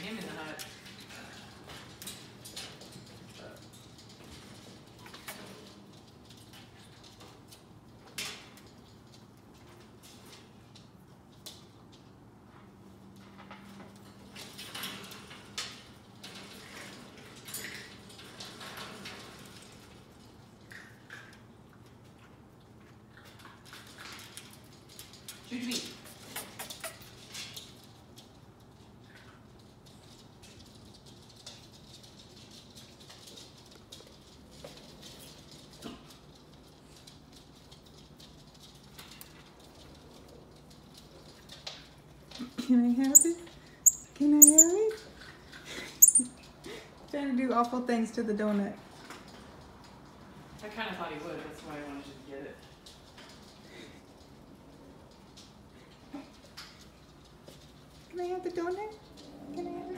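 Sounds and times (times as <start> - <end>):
monkey climbing wire cage: 43.1 - 44.9, 46.0 - 46.3.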